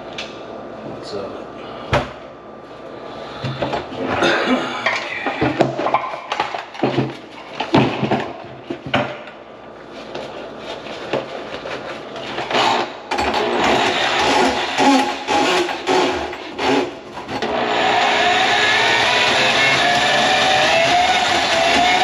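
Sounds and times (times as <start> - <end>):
hard objects clattering: 3.4 - 9.4.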